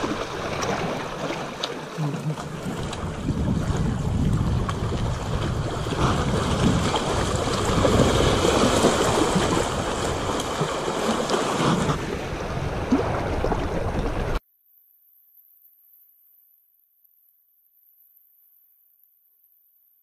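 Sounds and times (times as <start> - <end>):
waves washing against rocks: 0.0 - 14.4
wind buffeting microphone: 2.6 - 14.4.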